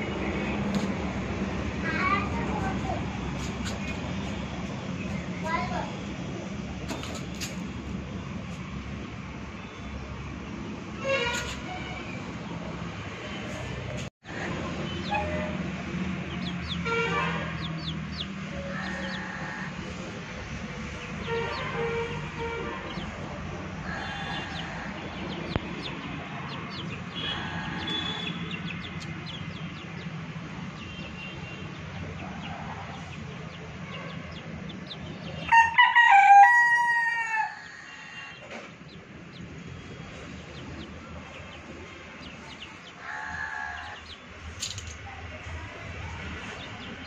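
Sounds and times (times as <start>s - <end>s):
rooster crowing: 18.5s - 19.8s, 35.5s - 38.4s.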